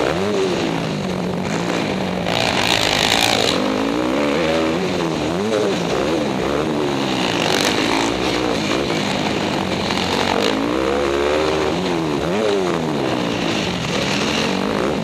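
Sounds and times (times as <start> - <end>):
dirt bike engine revving: 0.0 - 15.0.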